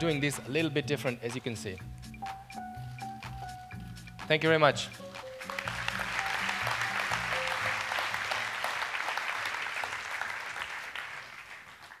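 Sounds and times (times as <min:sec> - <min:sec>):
background music: 0:00.0 - 0:10.2
audience applauding: 0:05.1 - 0:12.0.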